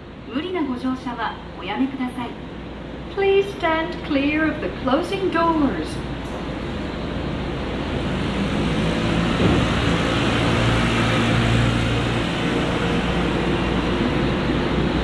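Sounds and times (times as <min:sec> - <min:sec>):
electric train motors humming: 0:04.0 - 0:15.0.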